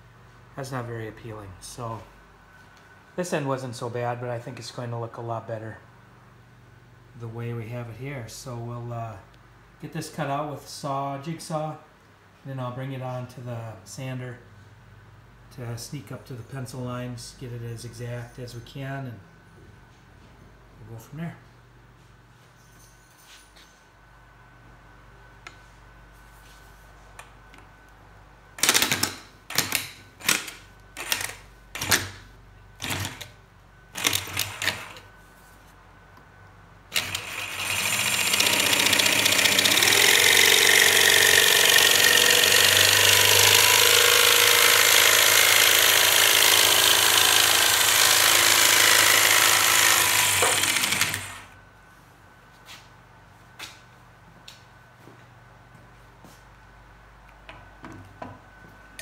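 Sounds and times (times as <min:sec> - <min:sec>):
jigsaw cutting hardboard: 0:36.9 - 0:51.6.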